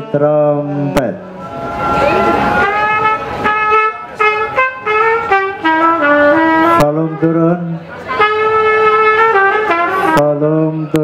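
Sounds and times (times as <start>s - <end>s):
lower instrument playing: 0.0s - 7.6s
trumpet playing melody: 0.0s - 10.4s.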